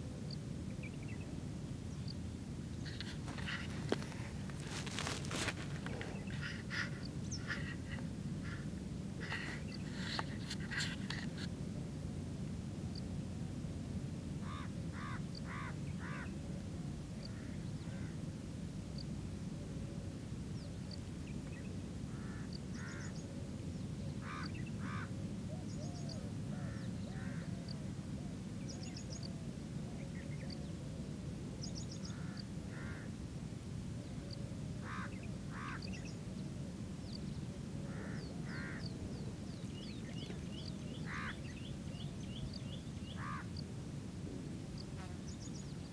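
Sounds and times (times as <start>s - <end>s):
steady low rumble: 0.0s - 24.8s
harsh bird calls: 2.8s - 11.3s, 37.9s - 38.9s, 39.7s - 43.6s.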